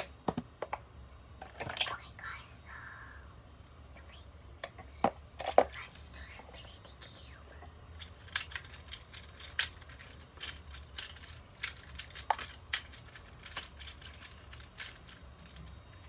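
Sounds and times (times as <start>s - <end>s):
plastic blocks clacking: 8.0s - 16.0s.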